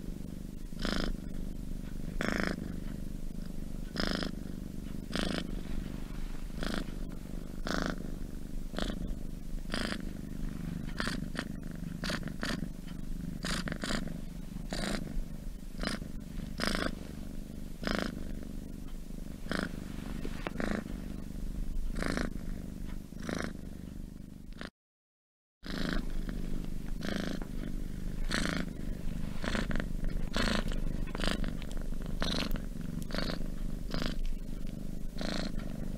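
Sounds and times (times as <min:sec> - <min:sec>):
cat purring: 0:00.0 - 0:24.7, 0:25.6 - 0:35.9.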